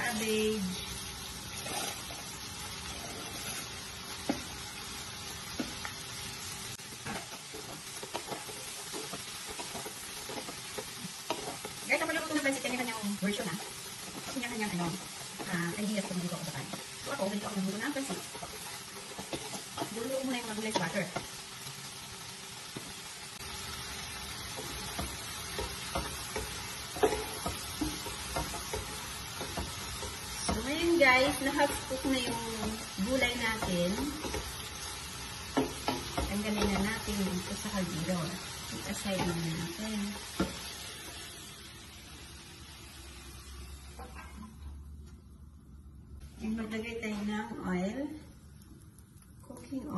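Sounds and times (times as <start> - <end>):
vegetables sizzling in a pan: 0.0 - 45.0, 45.7 - 49.9
spatula scraping a pan: 1.4 - 5.9, 6.9 - 21.4, 24.1 - 37.5.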